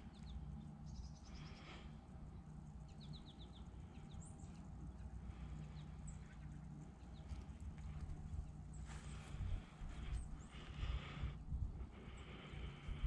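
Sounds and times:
songbird trills: 0.0 - 11.2
low rumble: 7.1 - 13.0.

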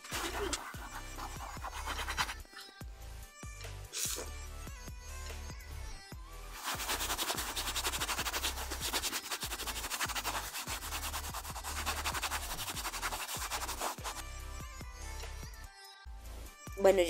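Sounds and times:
sponge scrubbing: 0.0 - 2.8, 6.6 - 14.2.

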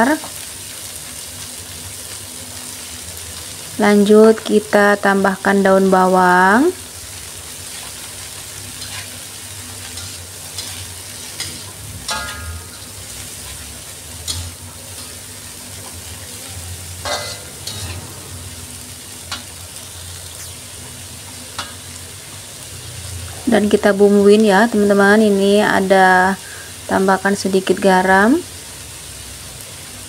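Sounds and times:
vegetables sizzling in a wok: 0.0 - 30.0
metal spatula scraping wok: 7.6 - 21.9.

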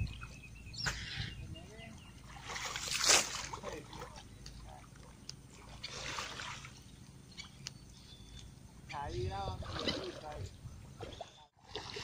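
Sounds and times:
water sloshing as people wade: 0.0 - 12.0
loud splash: 2.4 - 3.6.

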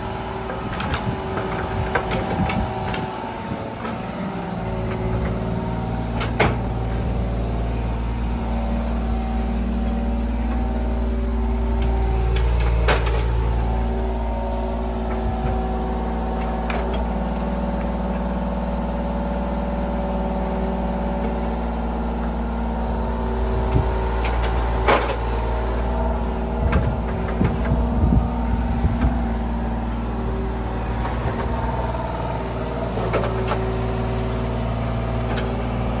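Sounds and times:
engine running: 0.0 - 36.0.

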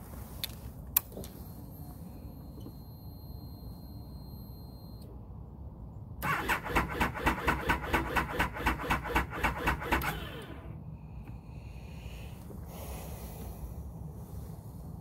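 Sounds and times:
motorcycle starter cranking engine: 6.2 - 10.8.

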